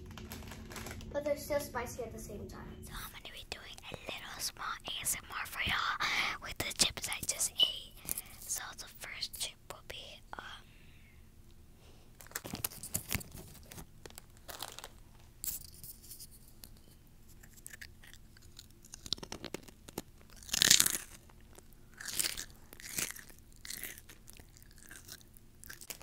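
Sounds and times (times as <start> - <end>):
crunching and chewing chips: 0.0 - 1.1, 6.9 - 8.5, 12.1 - 26.0.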